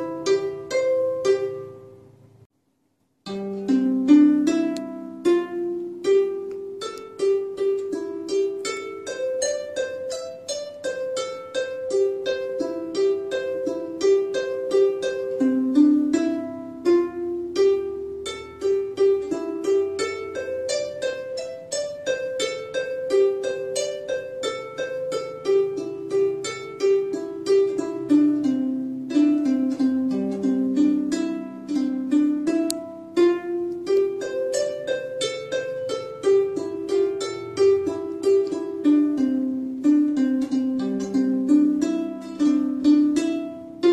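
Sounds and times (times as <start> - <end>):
plucked string melody: 0.0 - 2.5, 3.2 - 43.9.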